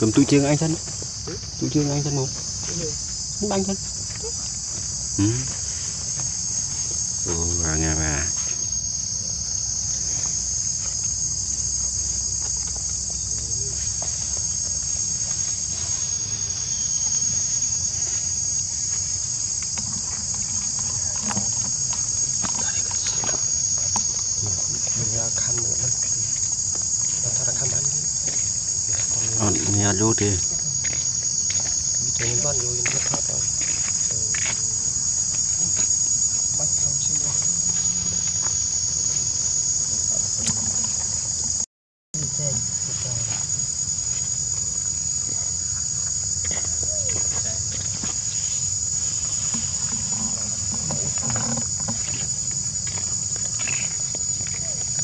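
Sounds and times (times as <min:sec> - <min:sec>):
high-pitched insect chorus: 0:00.0 - 0:55.0.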